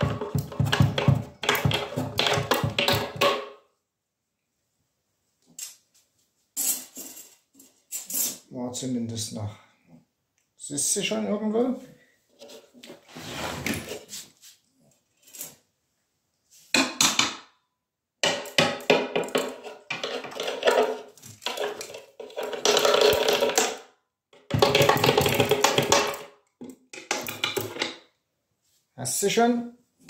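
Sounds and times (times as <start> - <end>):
objects scraping and clattering on tiles: 0.0 - 3.6, 6.5 - 8.5, 12.3 - 15.7, 18.2 - 28.0.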